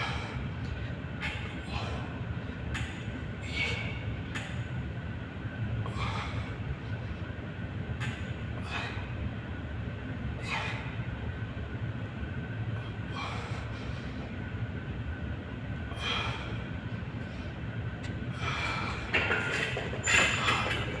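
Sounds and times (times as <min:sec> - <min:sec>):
man's forceful breaths: 0:00.0 - 0:02.7, 0:05.8 - 0:07.3, 0:12.9 - 0:14.5, 0:15.9 - 0:19.2
low rumble of room noise: 0:00.0 - 0:21.0.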